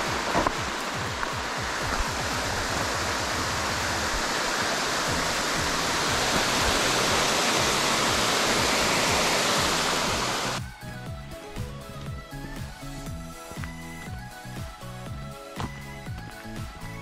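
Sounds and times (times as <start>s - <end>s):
flowing water rushing: 0.0s - 10.6s
faint music: 0.0s - 17.0s.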